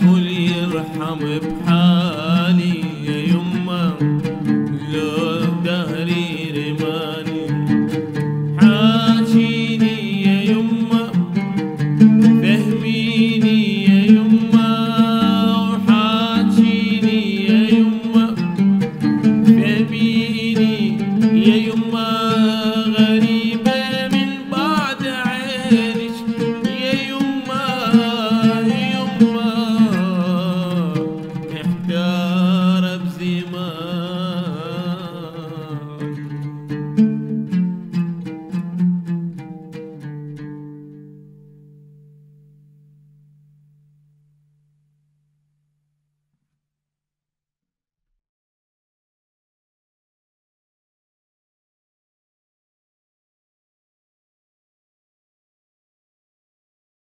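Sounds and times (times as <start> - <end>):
man singing ornamented melody: 0.0 - 37.8
oud: 0.0 - 44.2.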